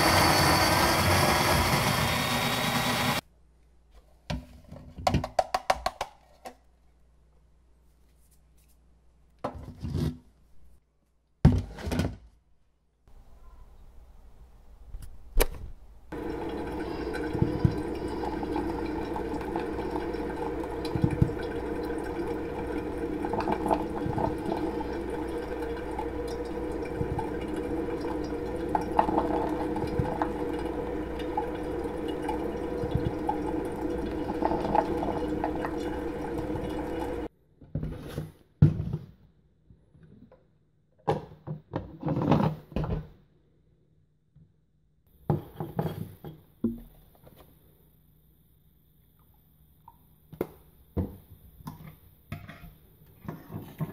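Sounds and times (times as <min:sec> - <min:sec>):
coffee maker brewing: 0:00.0 - 0:03.2, 0:16.1 - 0:37.3, 0:53.2 - 0:53.9.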